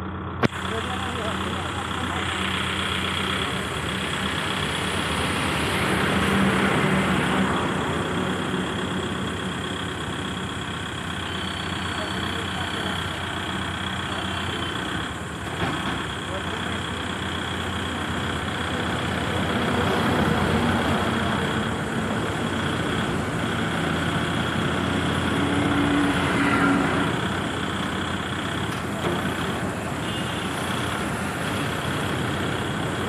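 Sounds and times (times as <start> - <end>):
tractor diesel engine running: 0.0 - 33.0
hydraulics lifting: 8.4 - 33.0.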